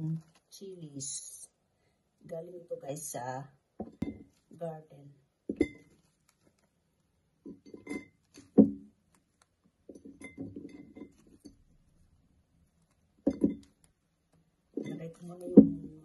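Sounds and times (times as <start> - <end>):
dishes clinking on table: 7.5 - 8.2, 9.9 - 11.5.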